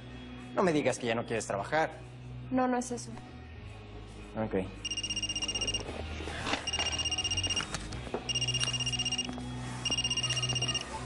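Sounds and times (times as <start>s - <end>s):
telephone ringing: 4.8s - 5.9s, 6.6s - 7.7s, 8.3s - 11.0s.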